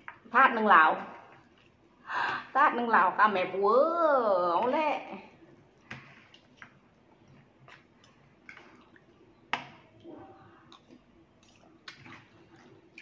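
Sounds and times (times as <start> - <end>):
wet squishing of noodles: 1.0 - 2.6, 5.1 - 13.0.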